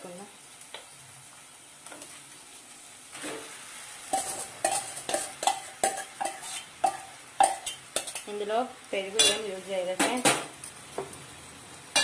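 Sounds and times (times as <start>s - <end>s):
oil sizzling: 0.0s - 12.0s
spoon clanking against steel bowl: 4.1s - 8.3s, 9.2s - 9.4s
metal spoon scraping steel bowl: 4.2s - 8.3s.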